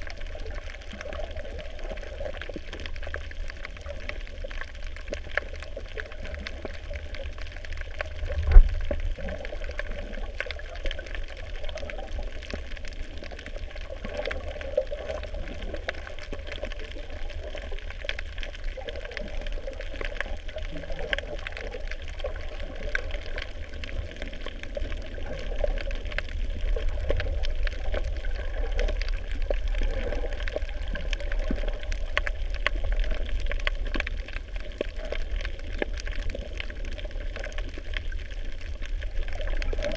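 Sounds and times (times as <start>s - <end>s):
faint underwater crackling: 0.0s - 39.9s
low underwater rumble: 0.0s - 39.9s
sharp underwater thump: 8.4s - 8.8s.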